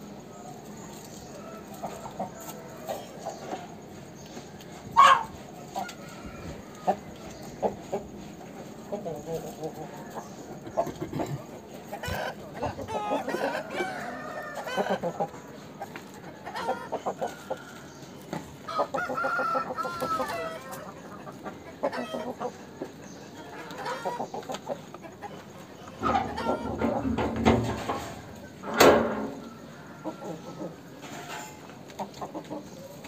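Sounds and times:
chickens clucking: 0.0 - 33.0
rooster crowing: 5.0 - 7.2, 13.2 - 15.0, 18.7 - 20.9, 29.1 - 30.8.

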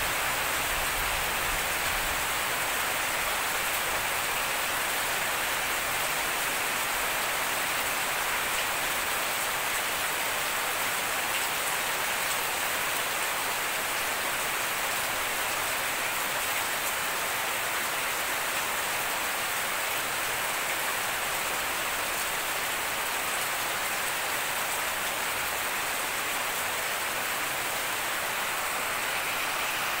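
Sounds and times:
steady rain falling: 0.0 - 30.0.

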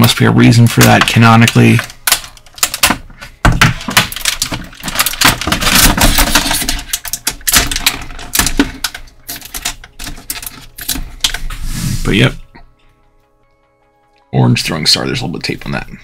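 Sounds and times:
plastic packaging crinkling: 0.7 - 11.5.

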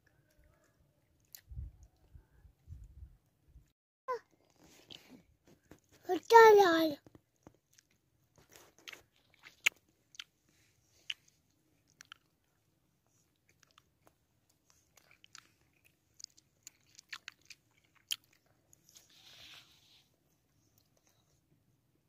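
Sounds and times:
child chewing food: 0.0 - 2.9, 4.2 - 6.0, 7.0 - 21.6.

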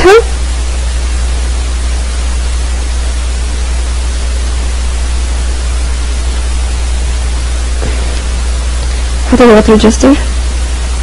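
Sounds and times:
constant low hum: 0.0 - 11.0
steady hiss: 0.2 - 11.0.

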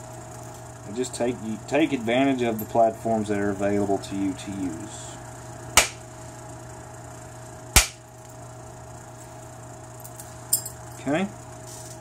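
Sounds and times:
antler striking stone: 5.8 - 6.0.

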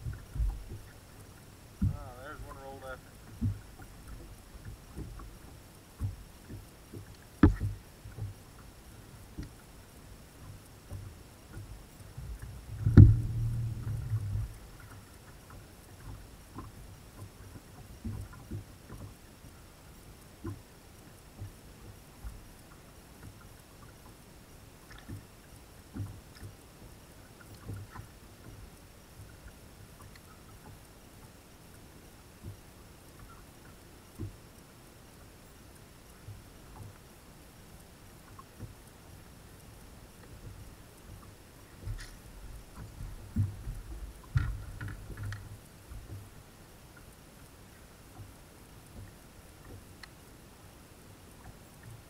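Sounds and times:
thumps and knocks on boat deck: 0.0 - 0.8, 1.8 - 2.1, 3.3 - 3.6, 6.0 - 8.4, 10.9 - 14.6, 42.8 - 46.3
dull low knocks on boat: 0.0 - 1.0, 1.8 - 8.7, 10.4 - 19.2, 25.9 - 26.6, 34.2 - 34.4, 40.3 - 46.4
faint steady hiss: 0.0 - 52.0
light ticks: 0.0 - 52.0.

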